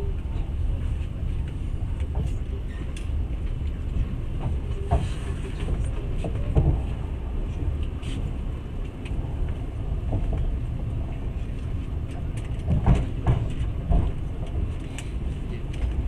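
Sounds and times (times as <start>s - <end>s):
train rumbling on rails: 0.0s - 16.0s
train wheel knocks: 12.5s - 14.6s.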